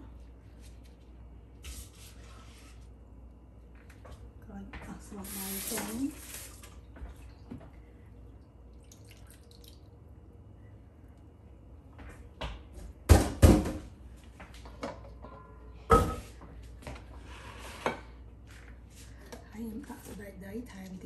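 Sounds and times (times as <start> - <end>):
water dripping and splashing: 5.3 - 7.7, 8.4 - 10.0
dishes knocking and clattering: 14.7 - 16.4.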